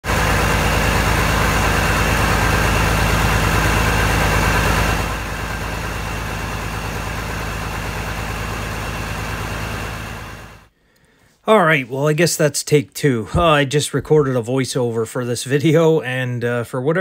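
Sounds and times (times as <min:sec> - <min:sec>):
diesel tractor idling: 0:00.0 - 0:10.7.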